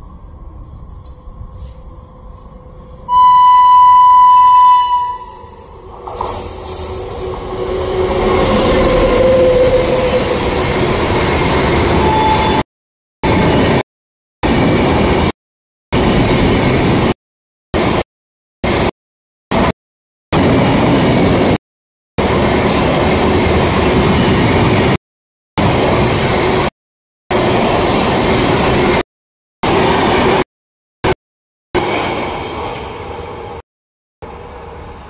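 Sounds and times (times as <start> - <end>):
train horn blast: 3.1 - 5.7, 6.9 - 10.4
train wheels rushing on rail: 5.0 - 12.6, 14.4 - 15.4, 16.0 - 17.2, 17.8 - 18.0, 18.6 - 18.9, 20.4 - 21.6, 22.2 - 25.0, 25.6 - 26.7, 27.3 - 29.0, 29.6 - 30.4, 31.8 - 33.6.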